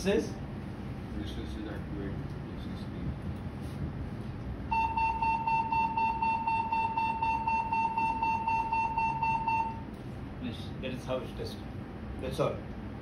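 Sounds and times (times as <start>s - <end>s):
high-pitched fluttering alarm beep: 4.7s - 9.9s.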